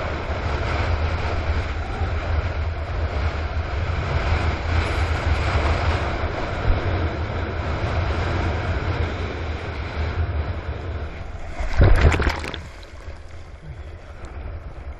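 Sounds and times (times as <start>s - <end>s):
wind buffeting microphone: 0.0s - 14.9s
water rushing past surfboard: 10.9s - 14.9s
loud water splash: 11.2s - 13.6s.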